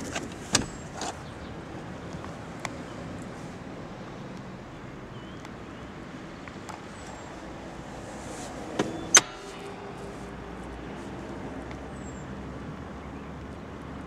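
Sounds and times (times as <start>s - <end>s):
sharp clicks in car cabin: 0.0s - 1.3s, 8.8s - 9.7s
brief metallic rattle: 8.8s - 11.1s.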